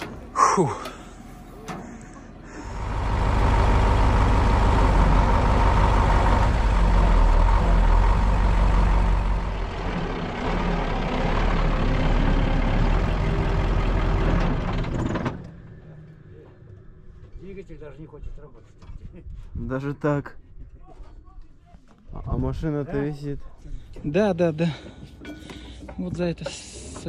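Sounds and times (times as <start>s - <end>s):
truck engine running under load: 0.0s - 16.1s
crane whine: 0.0s - 17.5s.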